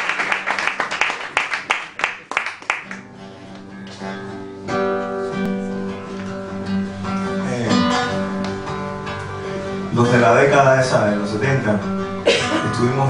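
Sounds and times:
acoustic guitar strumming chords: 2.9 - 13.0.

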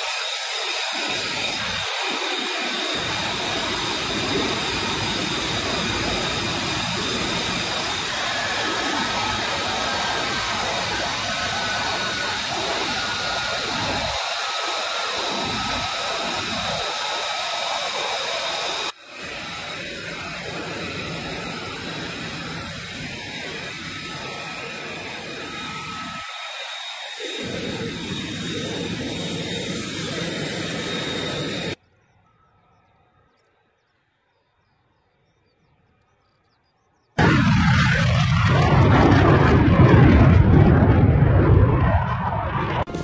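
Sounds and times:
jet engine rushing with whine: 0.0 - 43.0.

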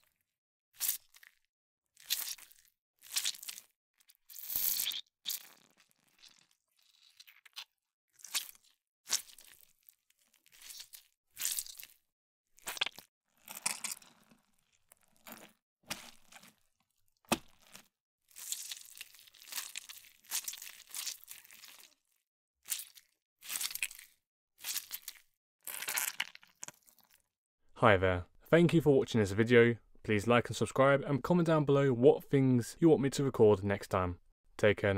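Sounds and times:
wet squelches: 0.0 - 12.0, 12.6 - 27.2.

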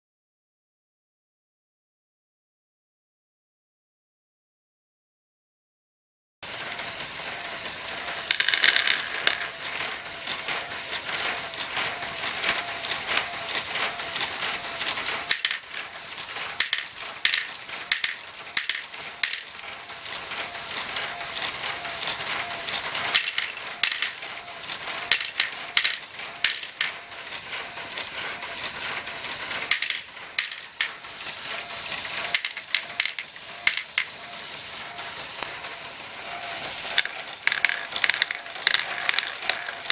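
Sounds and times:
plastic gears clattering: 6.6 - 39.9
plastic balls clicking: 8.1 - 13.3, 14.6 - 20.4, 22.3 - 27.2, 29.6 - 31.1, 32.0 - 34.2, 36.5 - 39.9.

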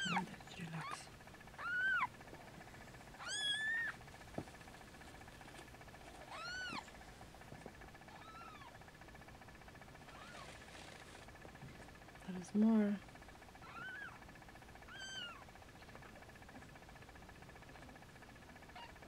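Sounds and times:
cat meowing: 1.6 - 2.1, 3.2 - 4.0, 6.3 - 6.9, 8.1 - 8.8, 13.6 - 14.2, 14.9 - 15.4.

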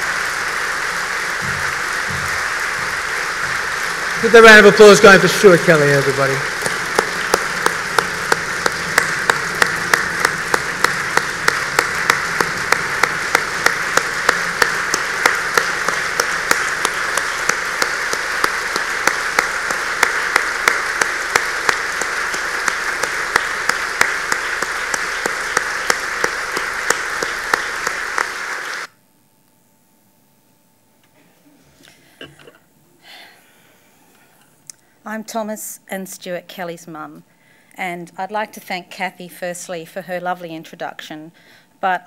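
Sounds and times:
audience applause: 0.0 - 28.9.

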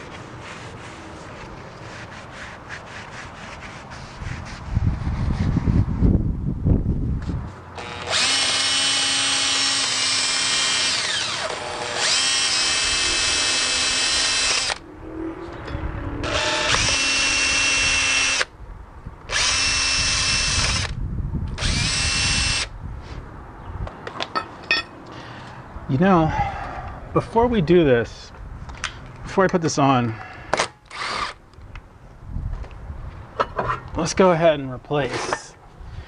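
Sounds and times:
drill spinning wire brush: 7.8 - 14.8, 16.2 - 18.5, 19.3 - 20.9, 21.6 - 22.7, 30.9 - 31.4.

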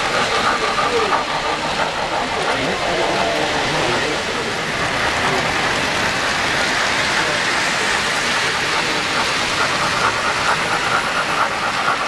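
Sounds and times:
model train wheels hissing: 0.0 - 12.0.

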